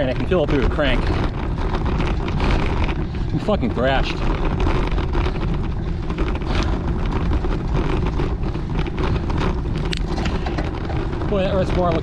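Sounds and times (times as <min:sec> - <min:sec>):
bike rattling on rough road: 0:00.0 - 0:12.0
wind buffeting microphone: 0:00.0 - 0:12.0.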